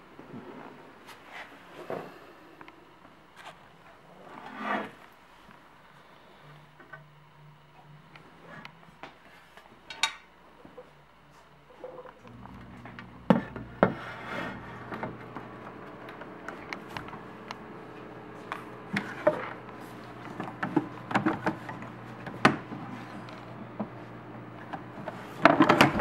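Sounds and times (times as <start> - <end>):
steady low hum: 0.0 - 26.0
wooden drawers opening and shutting: 24.8 - 26.0.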